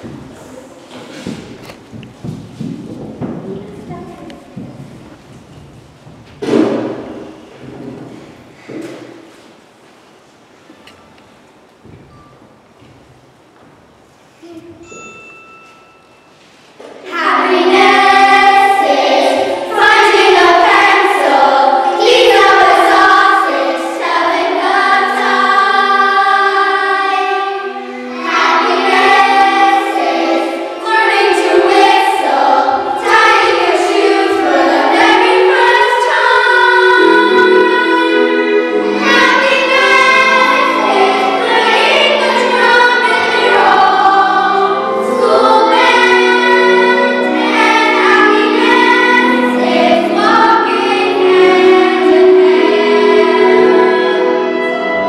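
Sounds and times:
girls singing together: 17.0 - 55.0.

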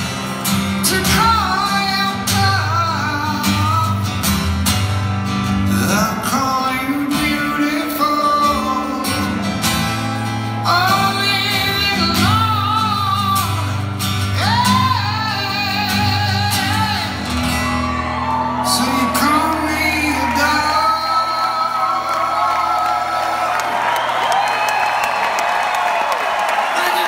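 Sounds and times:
acoustic guitar chords: 0.0 - 23.3
man singing rock vocal: 0.6 - 4.2, 5.6 - 17.4, 18.1 - 23.5.

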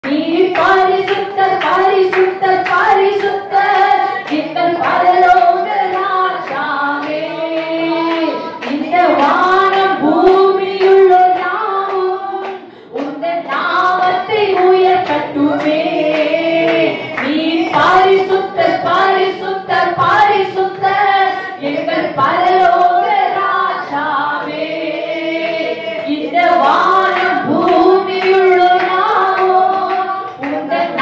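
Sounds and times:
woman singing worship song: 0.0 - 31.0.

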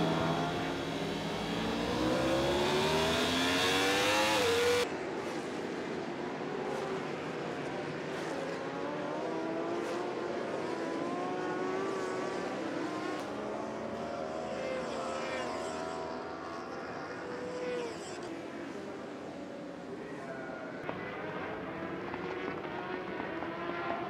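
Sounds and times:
racing motorcycle engines revving: 0.0 - 20.0, 20.8 - 24.0.

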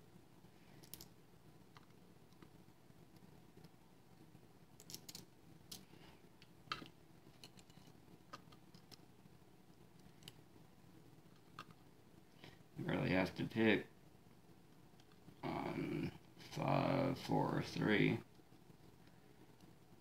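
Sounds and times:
small metal lock parts clicking: 4.8 - 5.3.

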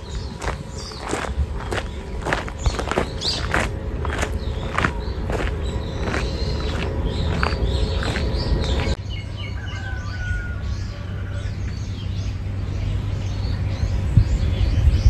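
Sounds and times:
footsteps on gravel: 0.0 - 9.0
low rumble: 0.0 - 9.0
small birds chirping: 0.0 - 15.0.

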